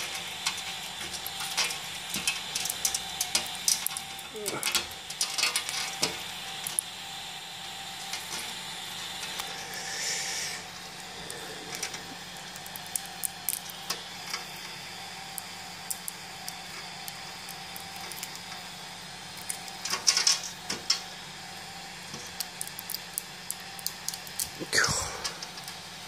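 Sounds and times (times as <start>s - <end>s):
plastic crackling and crunching: 0.0s - 6.9s, 10.7s - 18.6s, 22.0s - 24.6s
steady machine hum: 0.0s - 26.0s.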